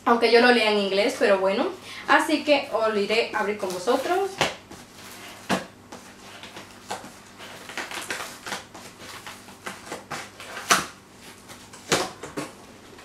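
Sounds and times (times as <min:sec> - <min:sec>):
cardboard rustling and crackling: 0:03.4 - 0:13.0
cardboard ripping: 0:03.6 - 0:12.3.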